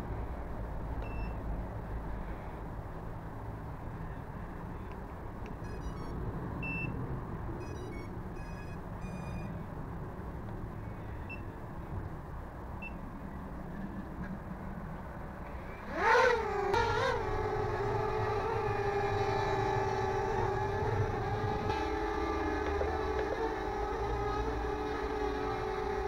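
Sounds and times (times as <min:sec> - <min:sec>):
toy drone motors whining: 0:15.9 - 0:26.0.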